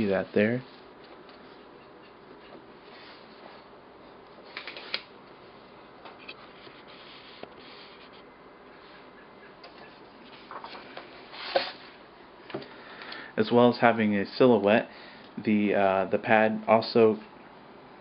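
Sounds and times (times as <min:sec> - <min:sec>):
low steady hiss: 0:00.0 - 0:18.0
paper sketch pad rustling: 0:06.3 - 0:08.3.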